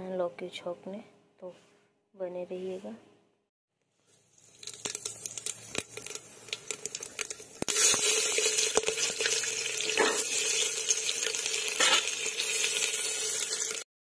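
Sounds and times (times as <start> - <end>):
hot oil crackling and popping: 4.0 - 13.9
loud steady sizzle: 4.0 - 13.9.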